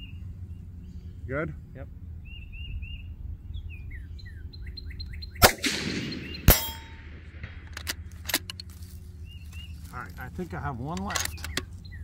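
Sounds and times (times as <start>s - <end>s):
bird chirping: 0.0s - 7.0s, 8.5s - 12.0s
rifle shots with echo: 5.4s - 8.4s.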